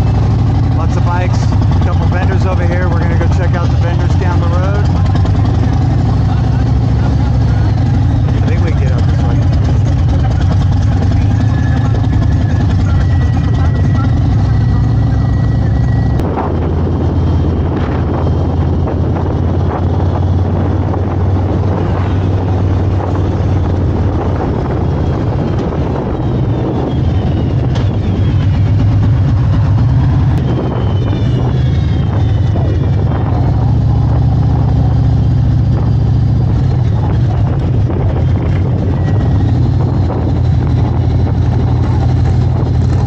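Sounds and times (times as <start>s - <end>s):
motorcycle engine running: 0.0s - 43.0s
road noise: 0.0s - 43.0s
wind noise: 15.5s - 43.0s.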